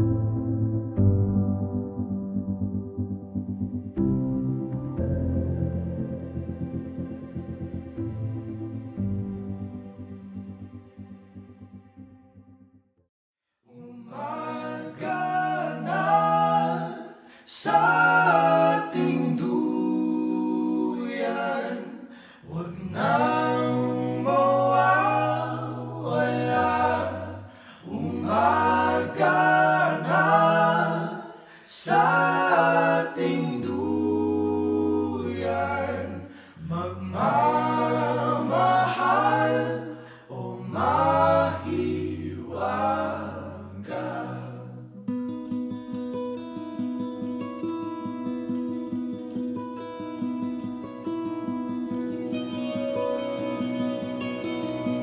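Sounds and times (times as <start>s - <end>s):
voices singing in harmony: 13.7s - 45.0s
low bass vocal line: 22.5s - 31.2s, 31.8s - 45.0s.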